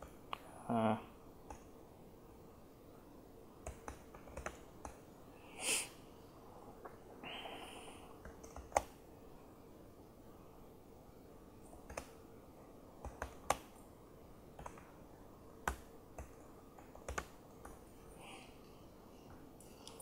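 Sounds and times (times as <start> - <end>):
faint steady hum: 0.0 - 20.0
laptop keyboard keystrokes: 3.6 - 5.0, 8.2 - 9.0, 11.7 - 12.2, 13.0 - 13.8, 14.6 - 14.9, 15.6 - 17.8.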